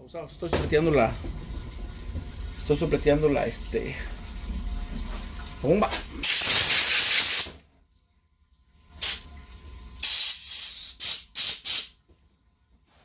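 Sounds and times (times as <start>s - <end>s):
compressed air blasts: 6.2s - 7.5s, 10.0s - 11.9s.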